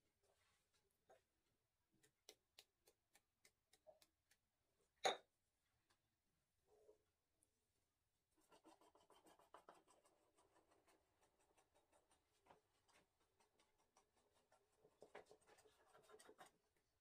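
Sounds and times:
knife scratching through pastry sheets: 8.4 - 16.6.

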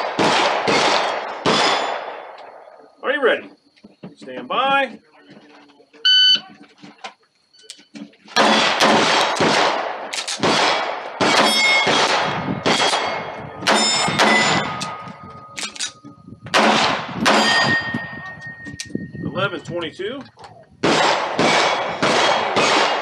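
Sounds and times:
pistol shots: 0.0 - 2.7, 8.4 - 18.0, 20.8 - 23.0
steel plate ringing: 11.4 - 11.9, 12.8 - 16.0, 17.3 - 19.1.

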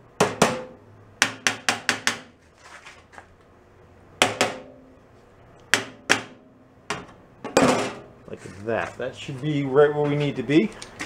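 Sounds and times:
hammer striking sheet steel: 4.2 - 4.9.

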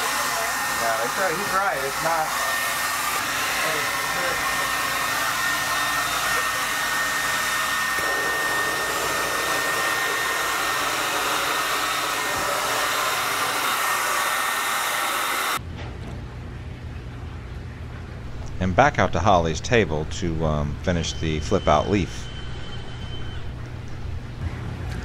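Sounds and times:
hair dryer blowing: 0.0 - 15.6.

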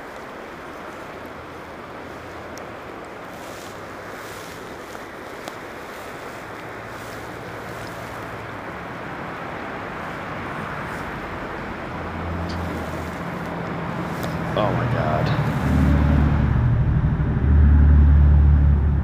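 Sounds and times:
fast-flowing river rushing: 0.0 - 16.6
low hum: 10.5 - 19.0.

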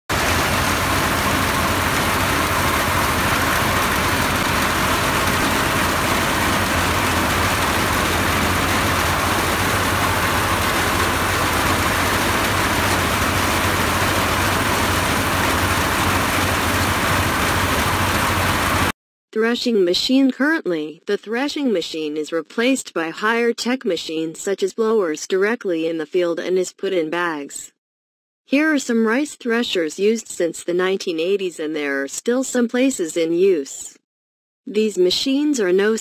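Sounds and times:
threshing machine engine drone: 0.1 - 18.9.

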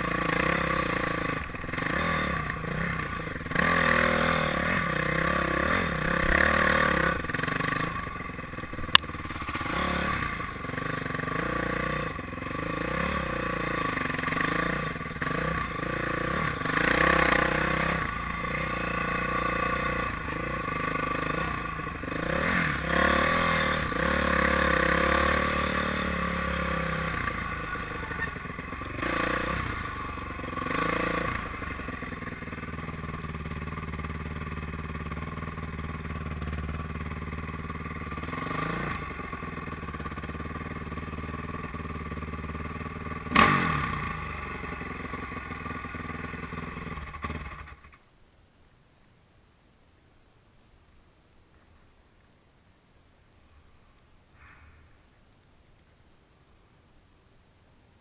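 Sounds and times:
dirt bike engine revving: 0.0 - 47.9.

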